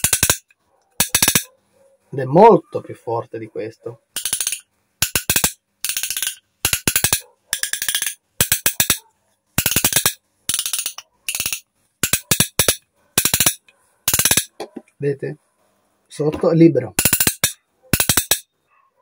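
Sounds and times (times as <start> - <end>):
fish-attractor clicker rattling: 4.2 - 9.0, 9.6 - 14.5.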